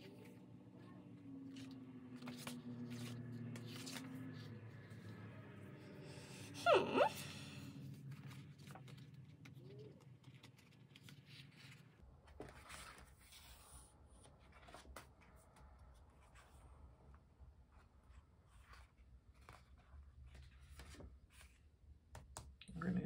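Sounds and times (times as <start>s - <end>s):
paper pages rustling: 1.4s - 5.8s, 7.8s - 16.8s, 17.7s - 21.8s.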